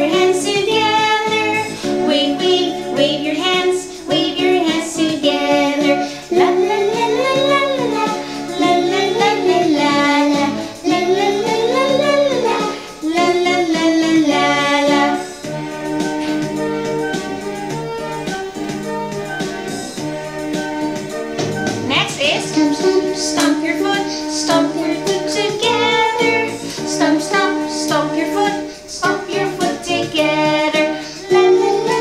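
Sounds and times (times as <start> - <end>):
woman singing children's song: 0.0 - 15.5, 21.9 - 32.0
instrumental backing track: 0.0 - 32.0.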